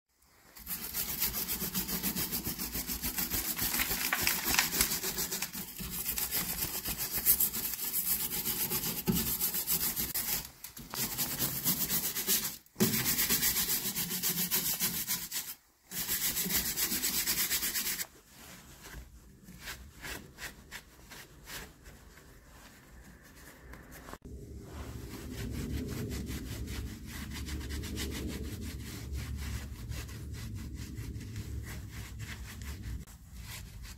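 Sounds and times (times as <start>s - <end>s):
cloth rubbing metal drum: 16.0s - 33.9s.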